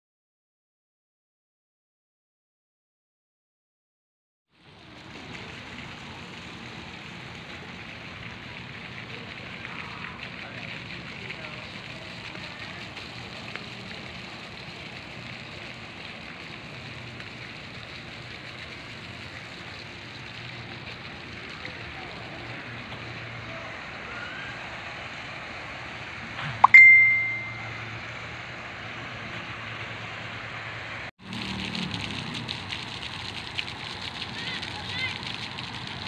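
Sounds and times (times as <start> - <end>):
outdoor background noise: 4.5 - 36.0
sharp metallic ding: 26.6 - 27.8.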